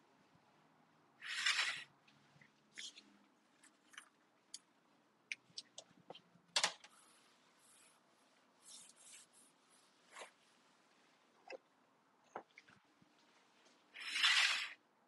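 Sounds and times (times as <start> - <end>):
soft rustles: 6.9 - 11.6.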